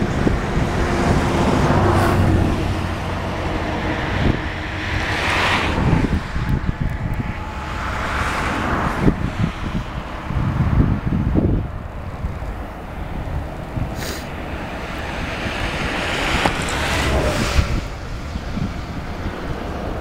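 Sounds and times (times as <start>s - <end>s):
steady low rumble: 0.0s - 20.0s
vehicles passing by: 0.0s - 20.0s.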